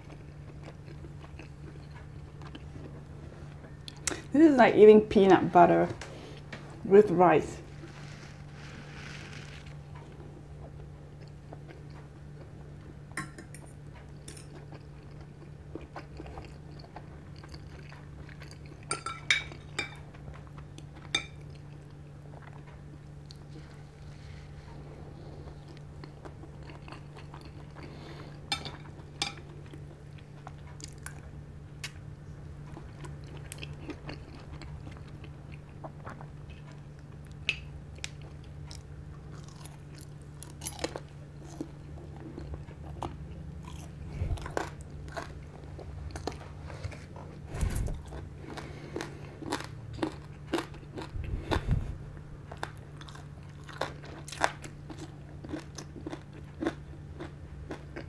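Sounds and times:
person chewing food: 0.0s - 4.3s, 7.7s - 58.0s
low hum: 37.8s - 53.5s.

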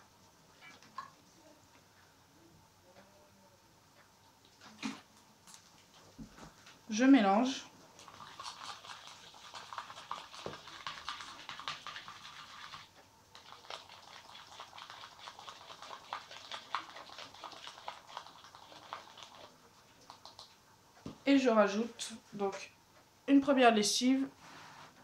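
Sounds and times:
plastic fork stirring in a bowl: 8.0s - 20.5s.

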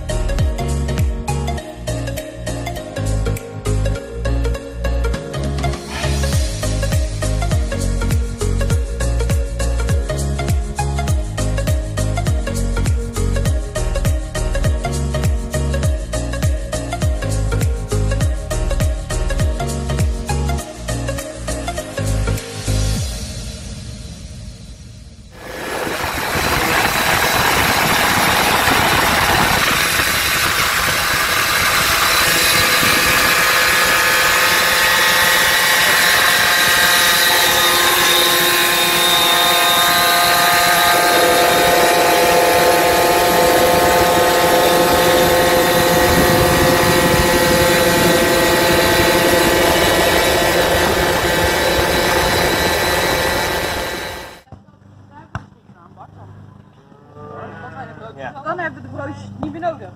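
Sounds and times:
moped engines running: 25.4s - 54.4s.

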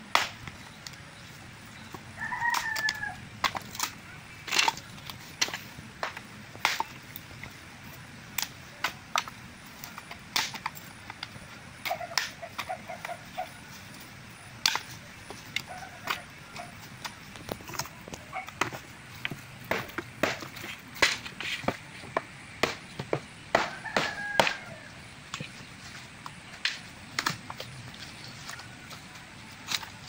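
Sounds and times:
firewood pieces knocking together: 1.9s - 7.6s, 8.3s - 13.2s, 14.6s - 24.7s.

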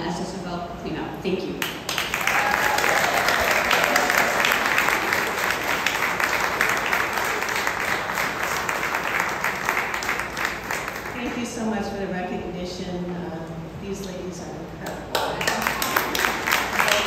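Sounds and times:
audience applauding: 1.7s - 11.2s, 15.1s - 17.0s.

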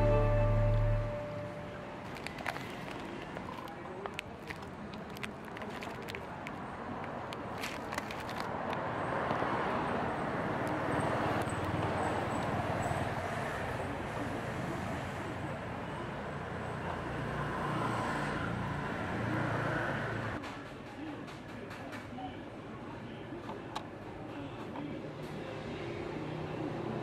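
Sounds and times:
low engine drone: 0.0s - 2.0s
passing motor traffic: 0.0s - 20.4s, 25.1s - 27.0s.

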